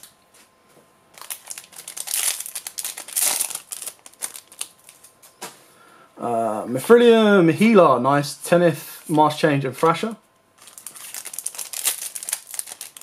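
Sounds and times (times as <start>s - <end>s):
foil wrapper crinkling: 1.1s - 5.2s, 10.6s - 13.0s.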